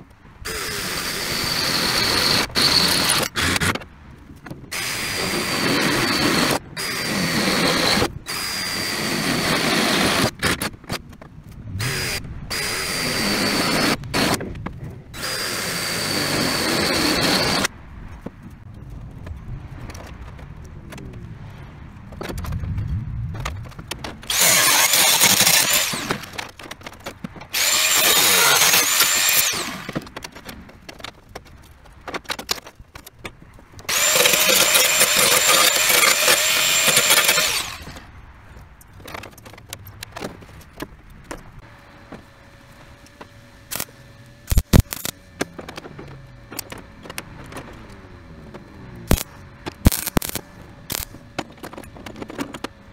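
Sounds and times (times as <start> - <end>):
power tool cutting sheet steel: 0.5 - 3.8, 4.7 - 10.6, 11.8 - 14.4, 15.2 - 17.7, 24.3 - 26.4, 27.5 - 30.0, 33.9 - 38.0, 49.0 - 51.1.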